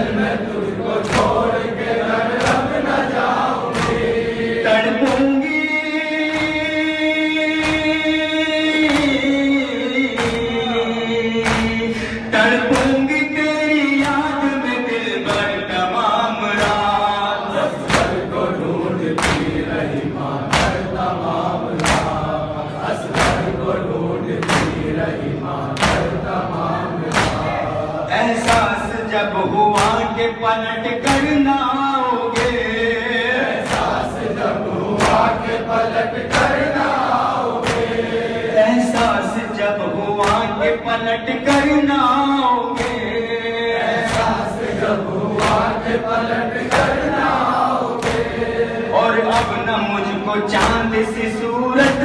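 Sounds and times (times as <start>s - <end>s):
men chanting in chorus: 0.0s - 52.0s
chest-beating slaps: 0.9s - 4.3s, 5.0s - 5.6s, 6.2s - 6.8s, 7.5s - 9.4s, 10.1s - 10.6s, 11.4s - 13.3s, 13.9s - 14.4s, 16.5s - 17.0s, 17.7s - 27.8s, 29.7s - 30.1s, 31.0s - 31.5s, 32.3s - 32.8s, 33.5s - 39.2s, 40.2s - 40.7s, 42.6s - 43.2s, 43.9s - 48.6s, 49.3s - 51.0s.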